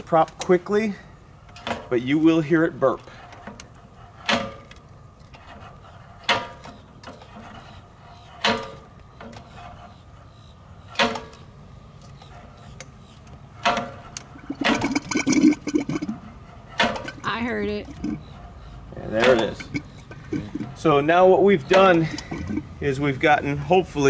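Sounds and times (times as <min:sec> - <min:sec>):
gurgling puffs of air and oil: 0:12.6 - 0:23.8.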